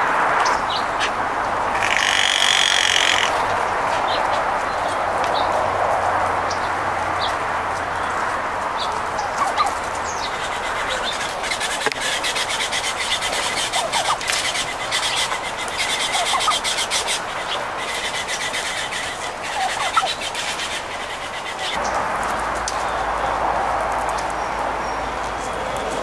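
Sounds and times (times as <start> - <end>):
birds chirping: 0.3 - 26.0
fast buzzing rattle: 1.7 - 3.4.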